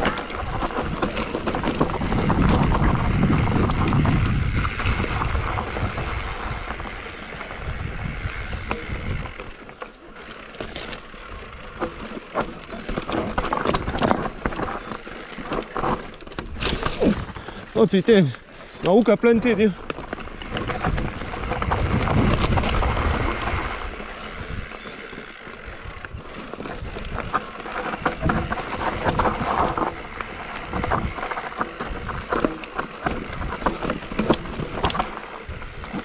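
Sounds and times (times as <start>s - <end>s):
bike knocking and rattling: 0.0s - 36.0s
tyres rumbling over dirt trail: 0.0s - 36.0s
wind rushing over microphone: 1.7s - 9.4s, 20.3s - 24.7s.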